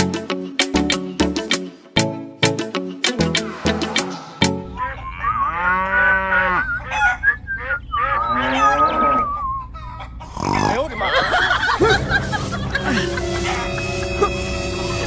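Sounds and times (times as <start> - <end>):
music with plucked notes: 0.0 - 4.7, 11.8 - 15.0
wavering high animal calls: 3.8 - 10.3
cow mooing: 4.7 - 9.4.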